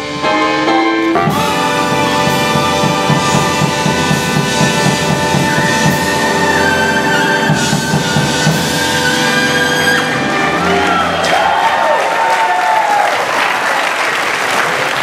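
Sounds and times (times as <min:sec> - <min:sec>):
big band horns holding a chord: 0:00.0 - 0:11.4
drum kit fills: 0:00.0 - 0:11.8.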